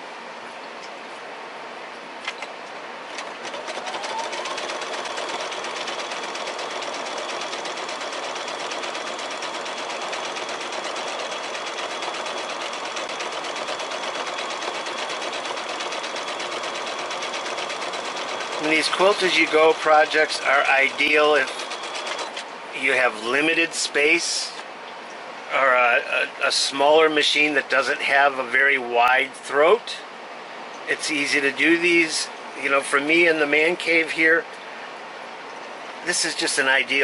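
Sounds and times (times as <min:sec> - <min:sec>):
sewing machine stitching: 0:03.1 - 0:22.5.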